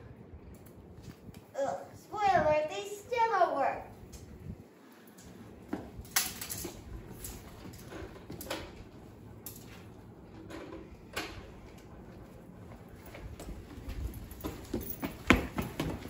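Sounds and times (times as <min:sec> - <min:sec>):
knocks and shuffling on concrete: 0:04.1 - 0:16.0.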